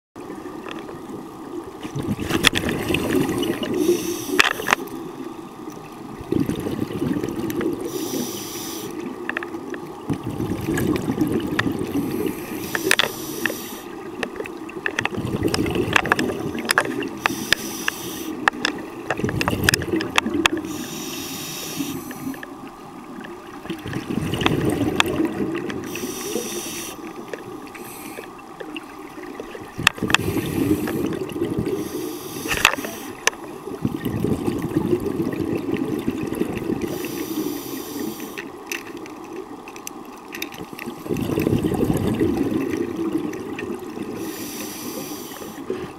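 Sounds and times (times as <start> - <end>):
exhaled air bubbling underwater: 0.2 - 45.9
low rumble of water: 0.2 - 45.9.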